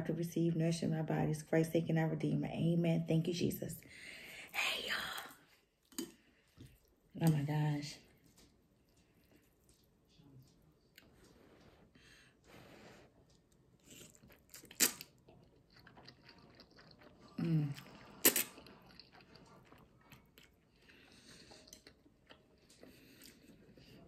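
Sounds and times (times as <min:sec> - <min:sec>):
chewing and slurping: 0:08.2 - 0:24.0.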